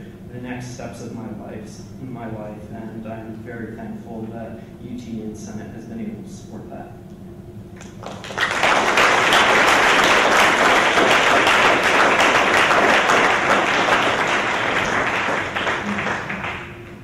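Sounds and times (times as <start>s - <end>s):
audience applause: 8.0s - 17.0s.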